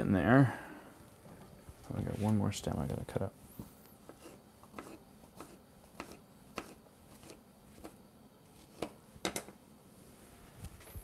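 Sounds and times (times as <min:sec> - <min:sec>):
knife cutting on cutting board: 0:04.1 - 0:08.0.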